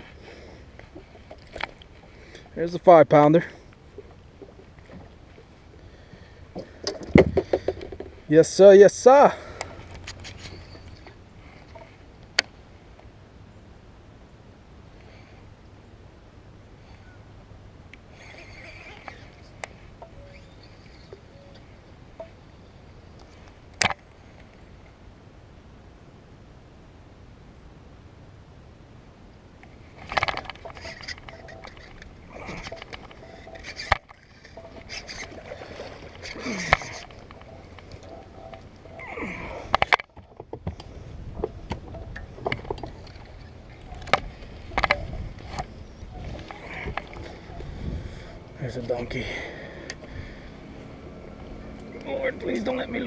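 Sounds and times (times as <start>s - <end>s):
low steady rumble: 0.0s - 53.0s
clicks and knocks of rod and reel: 0.7s - 8.3s, 9.4s - 13.1s, 17.9s - 22.4s, 23.1s - 25.0s, 29.6s - 50.3s.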